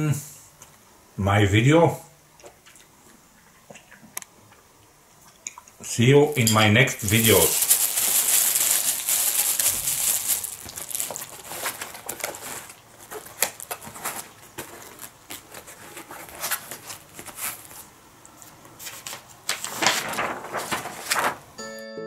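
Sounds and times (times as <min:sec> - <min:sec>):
plastic bag crinkling: 0:06.3 - 0:17.9, 0:19.1 - 0:21.6.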